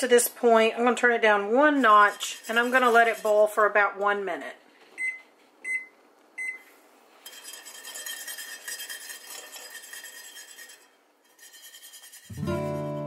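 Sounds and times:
whisk clinking in metal pot: 1.7s - 3.7s, 7.2s - 12.4s.

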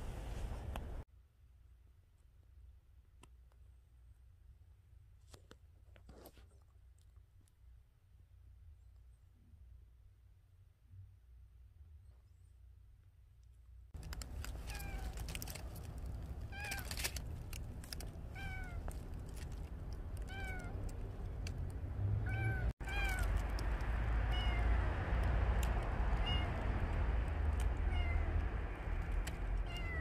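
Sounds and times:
crackling clicks: 14.0s - 21.9s, 25.1s - 29.7s
low rumble: 14.0s - 30.0s
kitten meowing: 14.6s - 15.3s, 16.5s - 17.0s, 18.3s - 18.9s, 20.2s - 20.8s, 22.2s - 23.3s, 24.3s - 24.7s, 26.2s - 26.6s, 27.9s - 28.3s, 29.6s - 30.0s.

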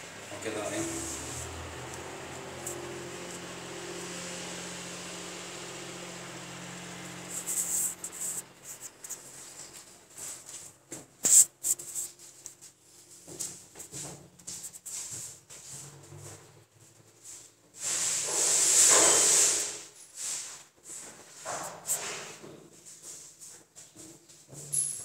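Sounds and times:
hand scraping wet cement: 7.2s - 9.6s.

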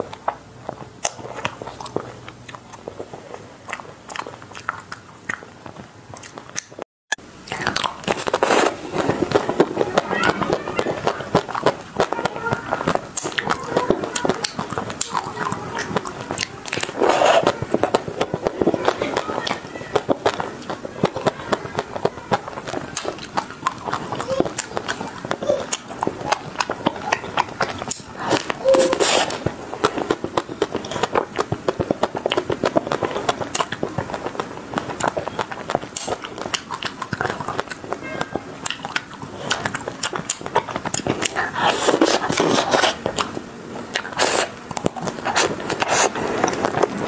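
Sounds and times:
chocolate shell crackling: 7.4s - 43.4s.

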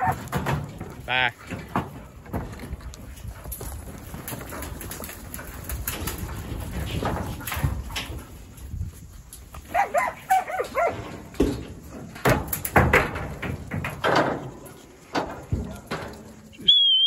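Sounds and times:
dog barking: 9.7s - 11.0s.

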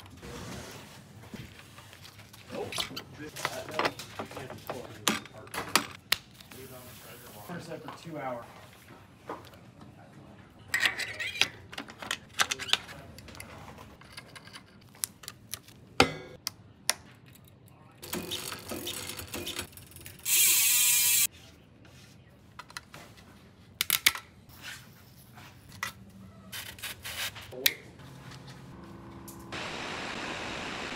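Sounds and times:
bicycle freewheel buzzing: 18.0s - 21.3s.

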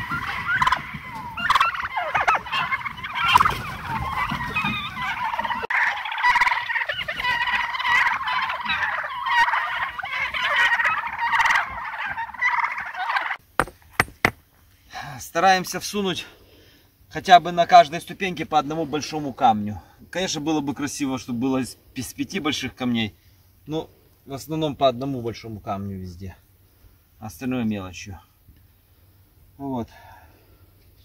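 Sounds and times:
turkeys gobbling: 0.0s - 13.7s.

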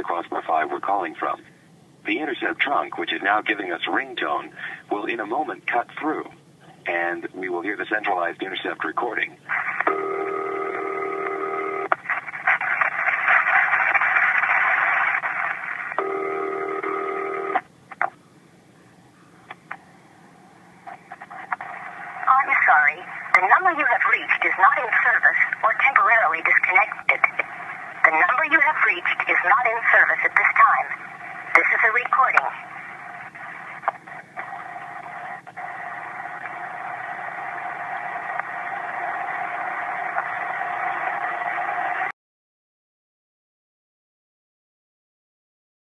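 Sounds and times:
faint steady hum-like tone: 0.0s - 11.9s, 16.0s - 39.7s
phone line hiss: 9.9s - 11.9s, 16.0s - 17.6s
telephone ringback tone: 9.9s - 11.9s, 16.0s - 17.6s.

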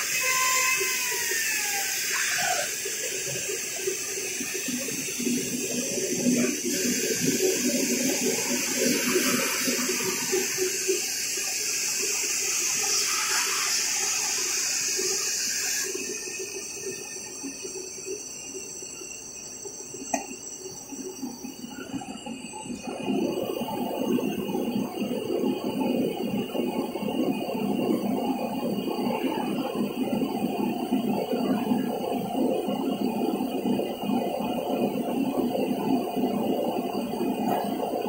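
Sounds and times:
router spindle hissing: 0.0s - 17.6s
machine noise: 0.0s - 38.0s.

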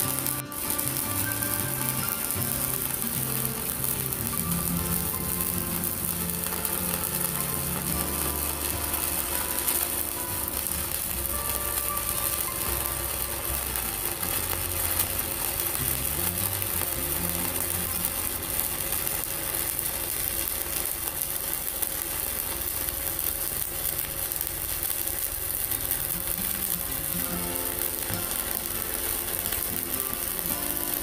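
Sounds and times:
background music: 0.0s - 19.8s, 26.6s - 31.0s
welding arc crackling: 0.0s - 31.0s.

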